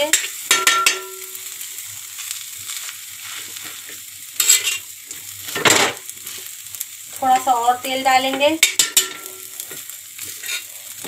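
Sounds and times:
oil sizzling on a griddle: 0.0s - 11.0s
metal spatula scraping griddle: 4.4s - 4.9s, 8.8s - 11.0s.

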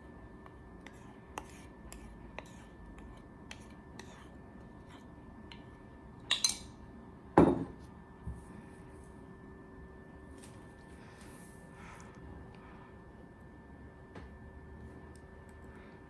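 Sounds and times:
knock on tabletop: 7.4s - 7.7s.

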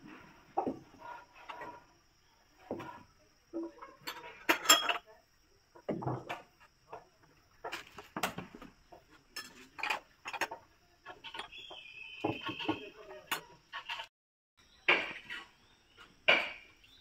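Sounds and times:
glass clinking on wood: 4.0s - 5.0s.

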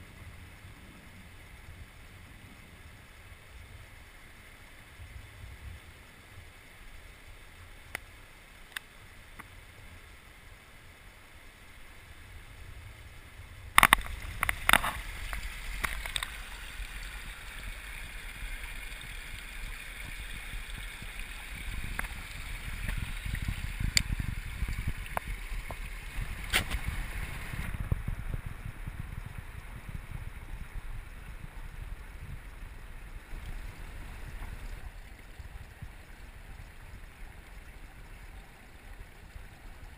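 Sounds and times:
stream water flowing: 0.0s - 39.9s
muffled underwater rushing: 12.4s - 39.9s
underwater clicks: 13.7s - 17.0s, 21.5s - 28.4s.

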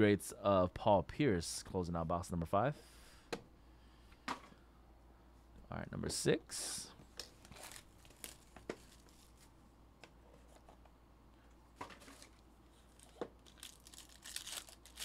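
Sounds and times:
foil packs clicking and crinkling: 7.2s - 9.5s, 11.9s - 15.0s
foil wrapper tearing: 12.9s - 15.0s.

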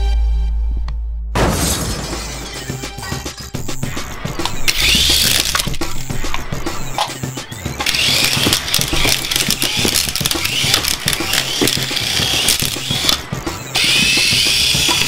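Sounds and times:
quick clicks: 4.4s - 13.3s
toy helicopter motor whirring: 4.6s - 5.8s, 7.8s - 13.2s, 13.8s - 15.0s.

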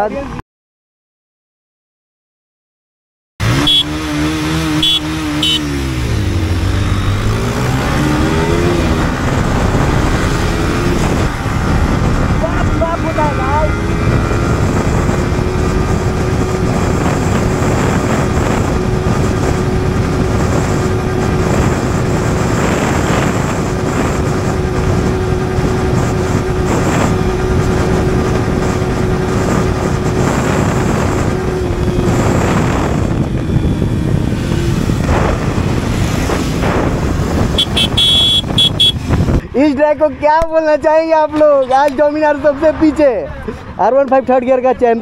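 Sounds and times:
motorcycle engine at high revs: 3.4s - 39.4s
wind rush: 3.4s - 43.9s.

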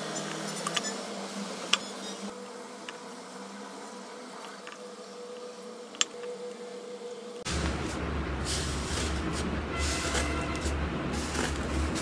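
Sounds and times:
peeler scraping: 8.7s - 12.0s.

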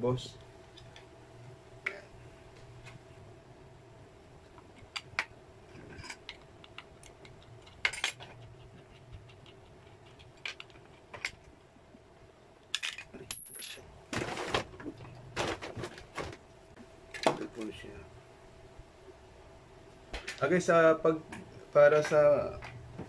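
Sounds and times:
rustling and knocking: 14.1s - 16.4s.

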